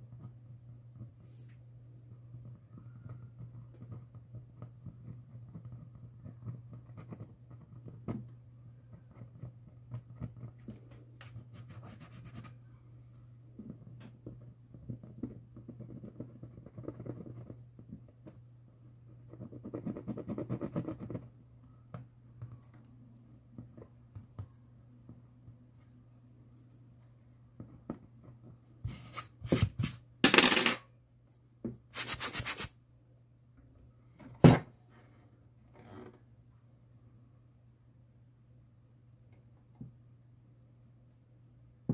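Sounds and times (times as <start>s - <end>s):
scratching and rubbing on loudspeaker: 32.0s - 32.7s.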